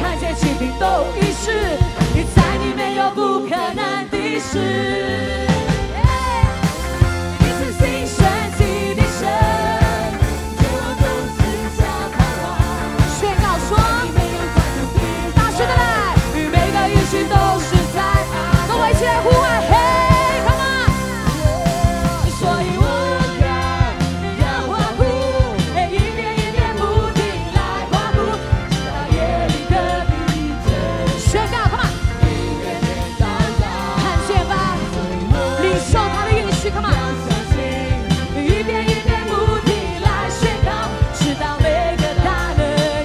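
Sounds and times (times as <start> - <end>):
band with steady drum beat: 0.0 - 43.0
person singing: 10.7 - 38.8.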